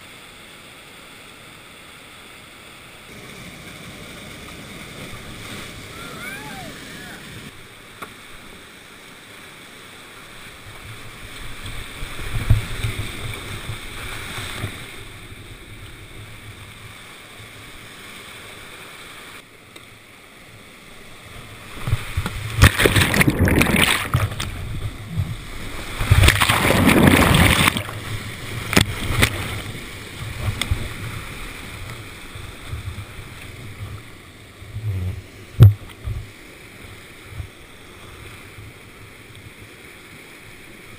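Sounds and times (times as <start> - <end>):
crashing water surges: 0.6 - 40.9
whitewater rushing: 2.9 - 8.4, 20.8 - 34.7.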